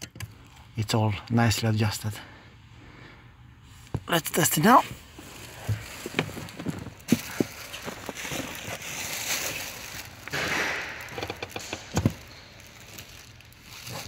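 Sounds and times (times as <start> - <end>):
foot rustling: 4.8 - 10.2.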